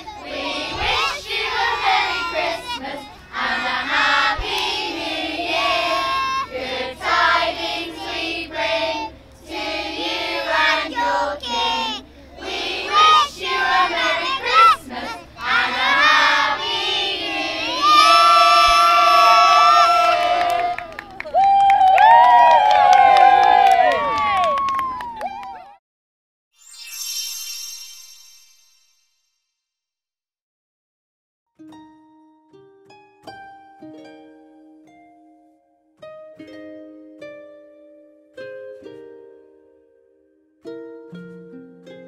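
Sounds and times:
children and adults singing: 0.0 - 18.7
long held shout: 6.0 - 6.5, 17.7 - 25.8.

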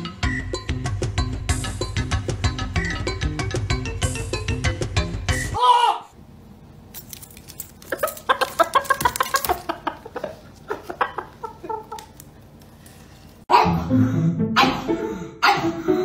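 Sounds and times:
background music: 0.0 - 5.6, 13.5 - 16.0.

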